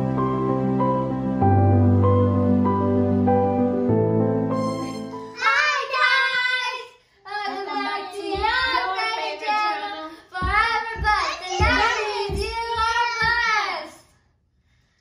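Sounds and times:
children singing: 5.3s - 13.9s
low bumps: 10.4s - 13.6s.

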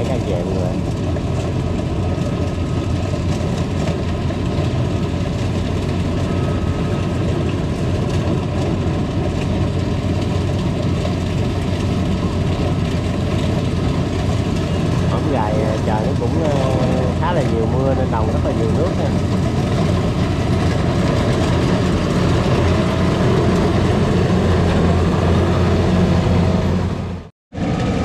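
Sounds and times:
combine harvester diesel engine: 0.0s - 28.0s.

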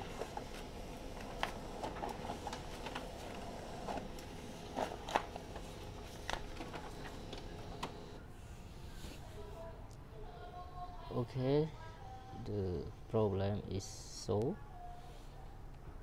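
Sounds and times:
sharp clicks of paper feed: 0.0s - 8.0s
laser printer running: 0.0s - 8.2s.

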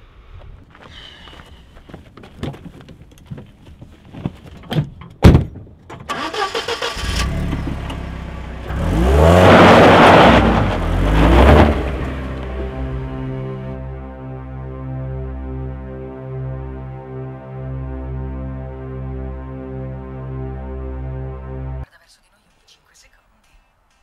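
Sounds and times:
tyres on gravel: 0.4s - 13.6s
car door thumping shut: 5.2s - 5.6s
car engine cranking and starting: 5.9s - 13.6s
car engine revving: 6.1s - 13.9s.

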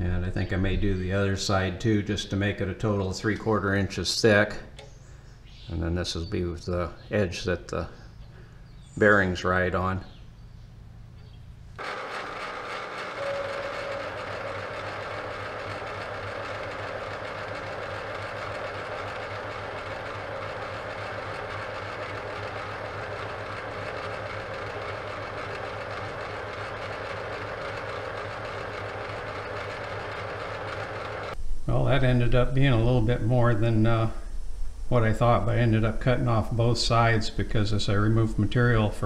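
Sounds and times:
milling machine cutting metal: 11.8s - 31.4s.

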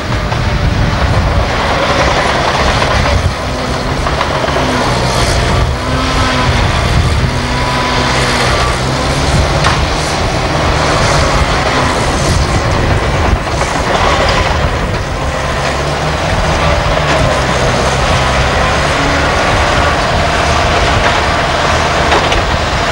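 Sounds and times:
diesel truck engine running: 0.0s - 22.9s.

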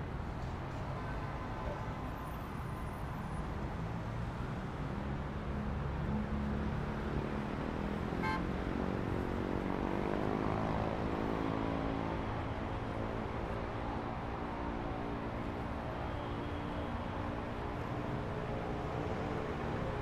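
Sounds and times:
rumble of passing traffic: 3.4s - 16.2s.

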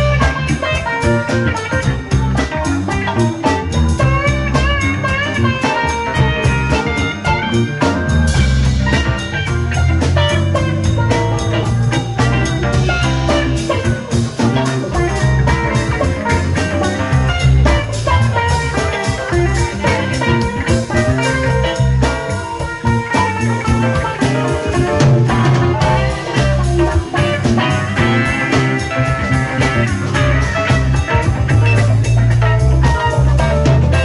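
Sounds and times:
drum kit beat: 0.0s - 34.0s
electric bass line: 0.0s - 34.0s
electric guitars: 0.0s - 34.0s
keyboards: 0.0s - 34.0s.

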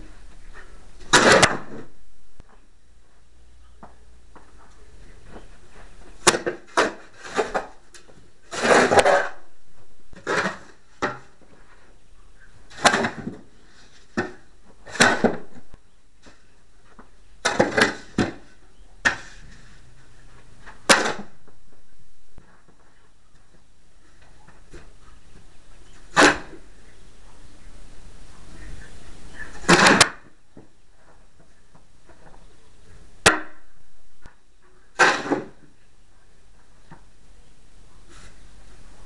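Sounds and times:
snow shovel scraping on steel: 8.4s - 9.4s.

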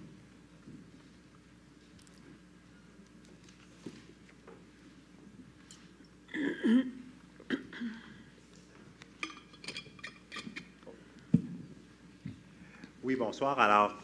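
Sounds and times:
person coughing: 6.3s - 8.2s.

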